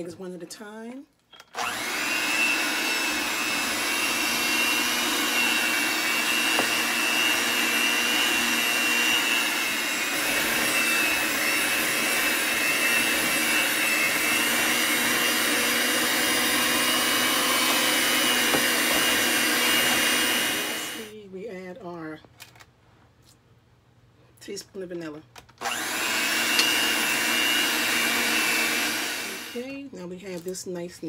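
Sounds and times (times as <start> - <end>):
electric hand mixer whining: 1.5 - 21.1, 25.6 - 29.8.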